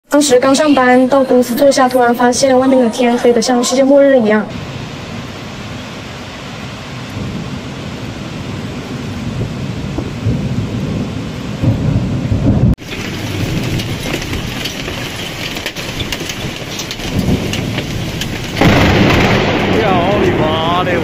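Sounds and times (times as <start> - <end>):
heavy rain hissing: 2.8 - 21.0
rolling thunder: 4.5 - 21.0
raindrops ticking: 12.6 - 21.0.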